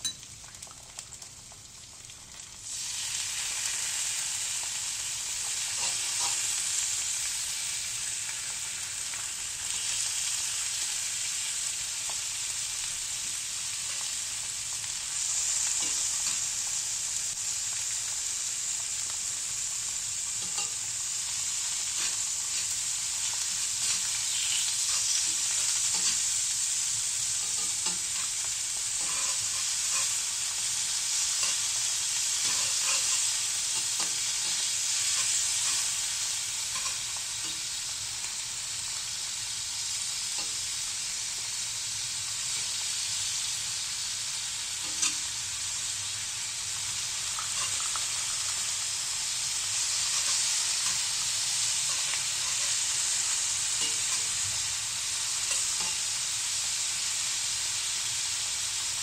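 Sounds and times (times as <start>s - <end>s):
beef sizzling in a skillet: 0.0s - 59.0s.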